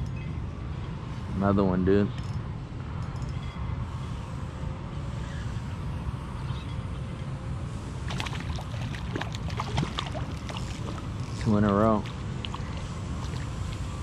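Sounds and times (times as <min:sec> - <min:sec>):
fish thrashing and splashing: 0:08.1 - 0:11.2.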